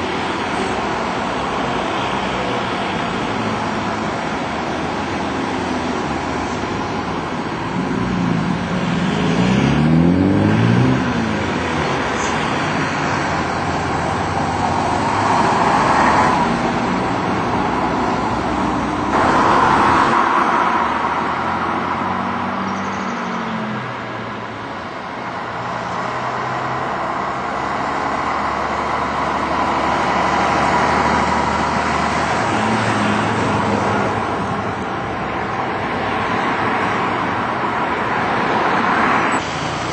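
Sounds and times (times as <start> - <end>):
bus diesel engines passing: 0.0 - 39.9
car traffic: 0.0 - 39.9.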